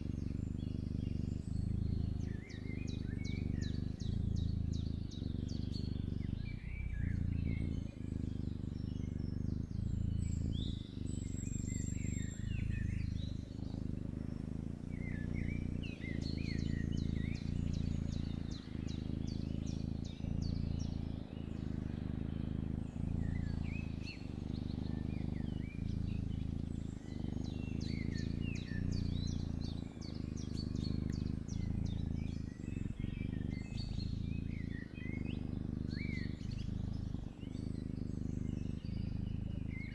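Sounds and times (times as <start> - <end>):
kitten purring: 0.0 - 39.9
small birds chirping: 0.0 - 39.9.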